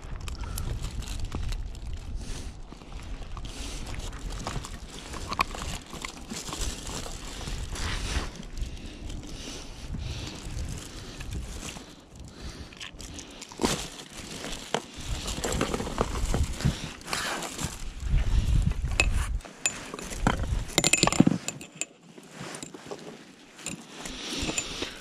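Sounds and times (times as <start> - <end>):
rustling: 10.2 - 25.0
pliers clinking: 19.0 - 22.8, 23.6 - 25.0.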